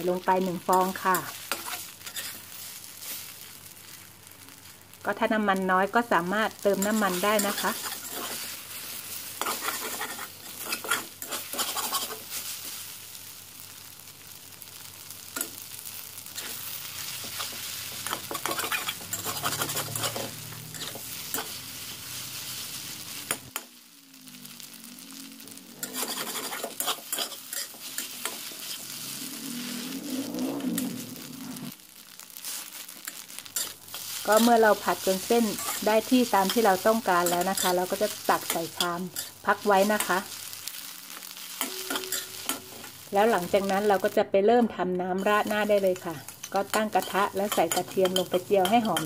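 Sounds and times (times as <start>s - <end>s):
food sizzling in a wok: 0.0s - 49.0s
metal spatula scraping pan: 0.7s - 2.5s, 6.8s - 12.4s, 16.4s - 22.1s, 25.8s - 29.7s, 33.6s - 40.2s, 41.4s - 43.1s, 45.2s - 49.0s.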